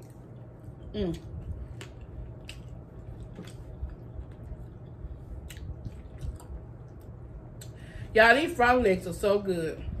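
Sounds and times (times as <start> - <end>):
wet chewing sounds: 0.0 - 7.8
low steady hum: 0.0 - 10.0.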